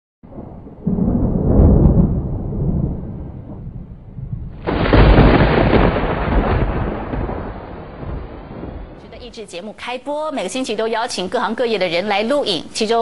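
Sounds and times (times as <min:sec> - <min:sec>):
deep rumble: 0:00.2 - 0:09.4
sudden boom: 0:00.3 - 0:09.3.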